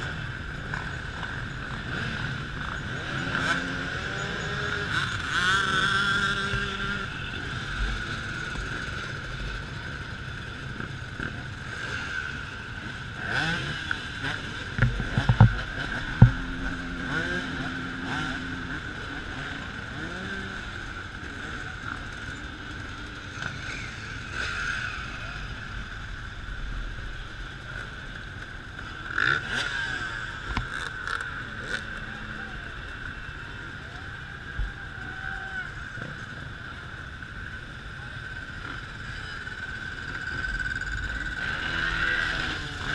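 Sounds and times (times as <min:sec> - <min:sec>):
dirt bikes riding past: 0:00.0 - 0:42.9.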